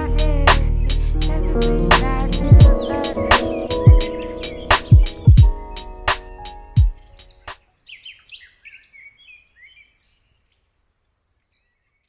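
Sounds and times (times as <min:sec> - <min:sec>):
hip-hop beat: 0:00.0 - 0:07.6
small birds chirping: 0:00.0 - 0:12.0.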